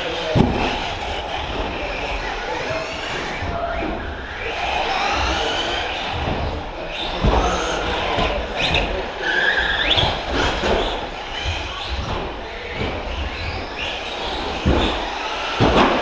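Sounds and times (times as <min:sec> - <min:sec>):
rc truck motors whining: 0:00.0 - 0:16.0
tyre squeal: 0:08.6 - 0:11.9.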